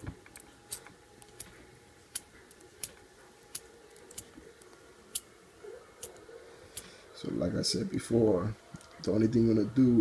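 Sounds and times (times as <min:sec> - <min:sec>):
fingers rustling wires: 0:00.0 - 0:05.3.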